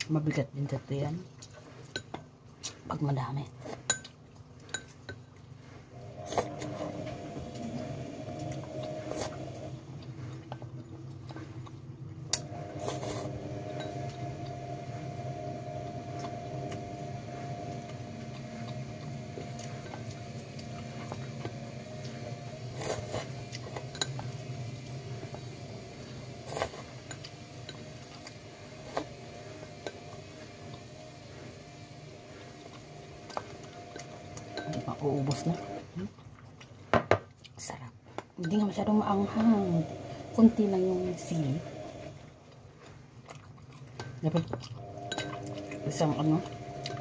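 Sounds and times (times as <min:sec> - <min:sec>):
steady low hum: 0:00.0 - 0:36.7.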